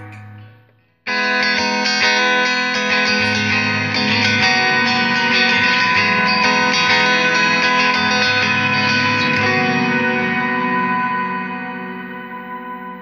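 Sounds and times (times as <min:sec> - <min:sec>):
electric guitar chords: 0:00.0 - 0:13.0.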